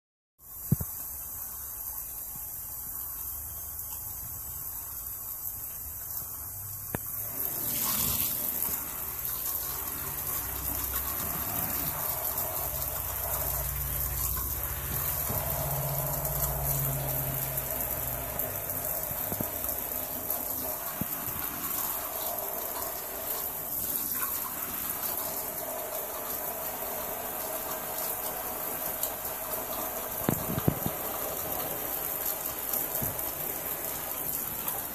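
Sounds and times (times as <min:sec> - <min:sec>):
shower water splashing: 0:00.4 - 0:34.9.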